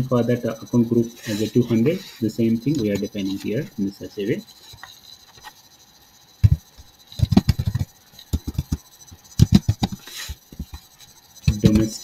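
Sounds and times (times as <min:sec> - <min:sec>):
computer keyboard typing: 0:06.4 - 0:08.8, 0:09.4 - 0:10.0, 0:11.4 - 0:12.0.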